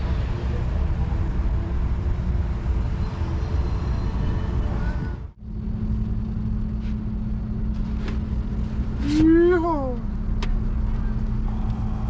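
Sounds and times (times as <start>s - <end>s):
steady low hum: 0.0s - 12.0s
urban traffic rumble: 0.0s - 12.0s.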